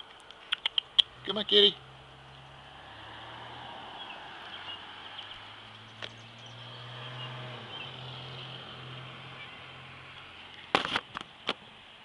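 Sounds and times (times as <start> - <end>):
bird chirps: 4.0 - 8.0.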